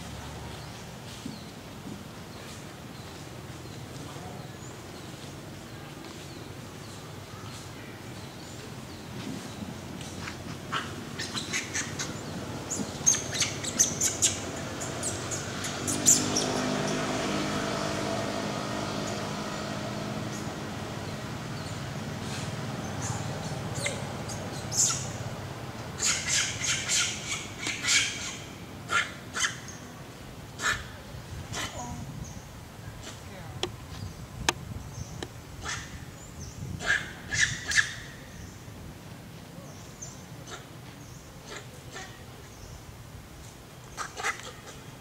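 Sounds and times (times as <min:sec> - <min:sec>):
sharp high chirping calls: 0:10.7 - 0:17.0.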